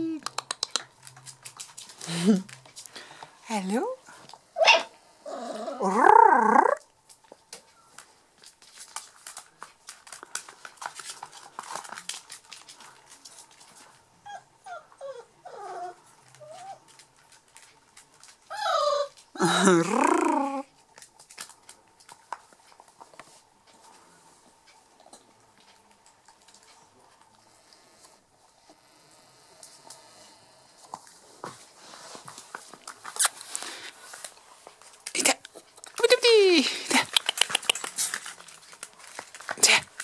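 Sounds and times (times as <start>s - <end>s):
paws clicking: 0.2s - 2.9s, 36.9s - 40.0s
puppies whining and crying: 14.2s - 16.8s, 18.5s - 20.6s
puppies squeaky whimpers: 18.5s - 19.2s.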